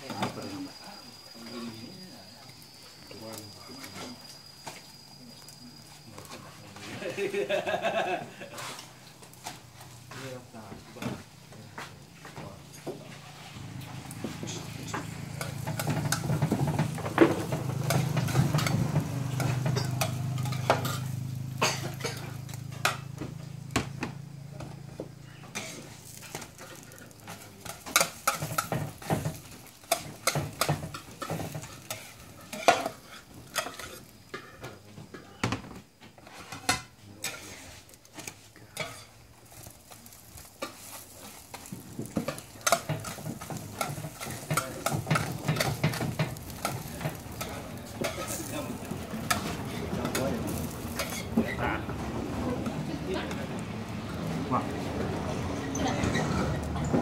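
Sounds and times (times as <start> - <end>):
frying sizzle: 0.0 - 57.0
metal spatula scraping on griddle: 8.4 - 10.2, 13.1 - 23.2, 25.5 - 34.8, 36.2 - 51.9, 54.8 - 57.0.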